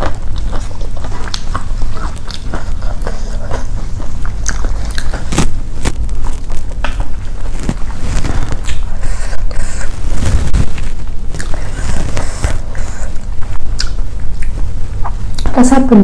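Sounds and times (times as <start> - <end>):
close chewing and biting: 0.0 - 15.6
steady low hum: 0.0 - 16.0
paper wrapping crinkling: 5.0 - 13.0.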